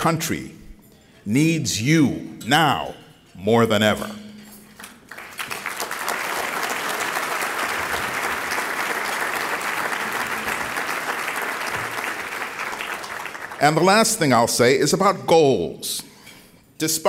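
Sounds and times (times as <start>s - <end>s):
audience applauding: 4.8s - 14.2s.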